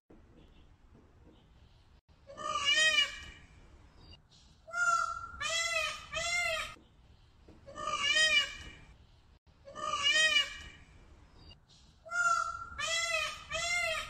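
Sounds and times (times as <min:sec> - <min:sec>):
peacock calling: 0:02.3 - 0:03.5, 0:04.7 - 0:06.8, 0:07.7 - 0:08.9, 0:09.7 - 0:10.9, 0:12.0 - 0:14.0.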